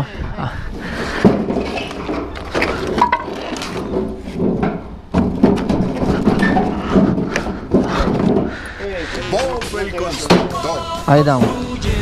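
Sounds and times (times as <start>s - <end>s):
wooden planks clattering: 0.8s - 12.0s.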